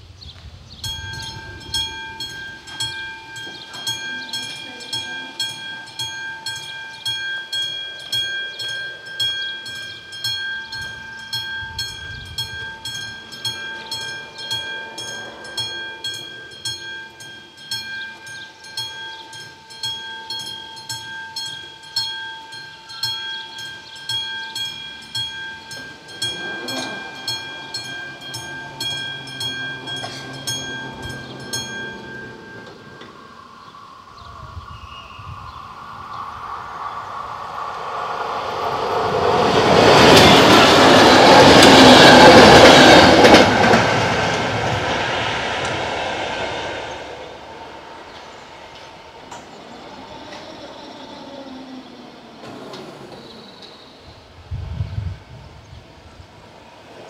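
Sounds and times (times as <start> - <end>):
level crossing bell ringing: 0.9 - 33.8.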